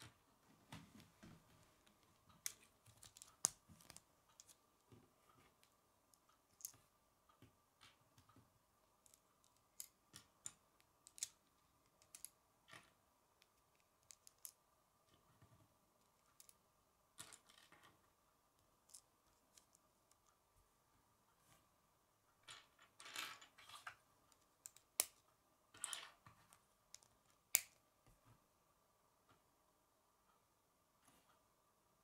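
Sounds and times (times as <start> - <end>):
plastic pieces clicking and snapping: 9.0 - 12.9.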